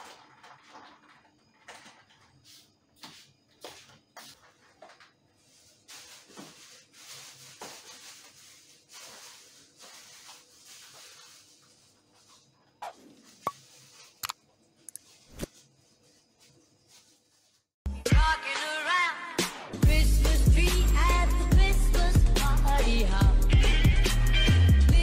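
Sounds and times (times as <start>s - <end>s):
kitchen rustling and handling: 0.0s - 17.7s.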